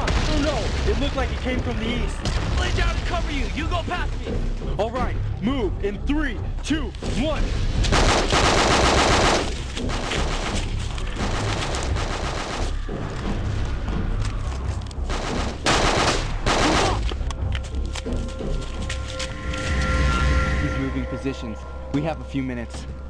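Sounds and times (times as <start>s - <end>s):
automatic gunfire bursts: 8.0s - 10.5s, 15.1s - 17.0s.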